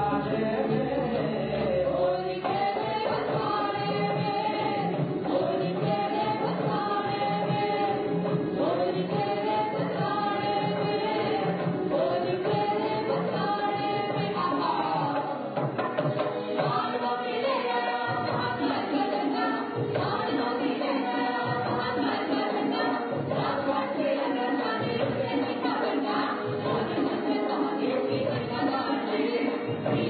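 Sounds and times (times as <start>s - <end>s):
folk dance music: 0.0s - 30.0s.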